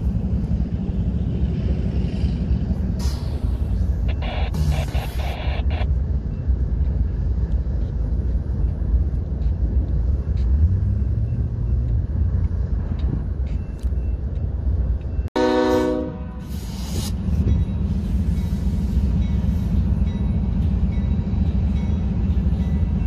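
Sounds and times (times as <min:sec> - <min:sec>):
diesel locomotive rumble: 0:00.0 - 0:23.0
locomotive horn blast: 0:15.4 - 0:16.5.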